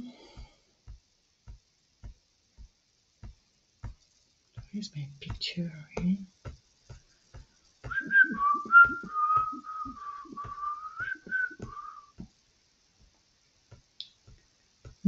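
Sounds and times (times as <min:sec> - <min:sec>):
person whistling a tune: 0:07.9 - 0:12.2.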